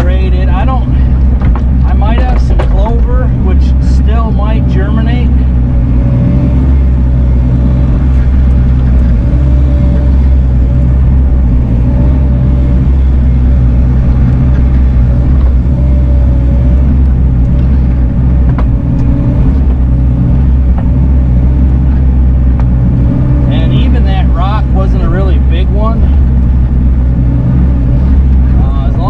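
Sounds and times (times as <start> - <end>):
excavator diesel engine: 0.0 - 29.0
wavering whine: 0.0 - 29.0.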